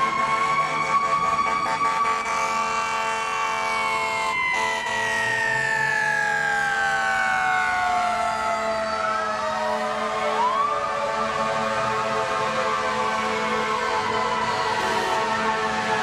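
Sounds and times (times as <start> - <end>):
fire engine siren wailing: 0.0 - 16.0.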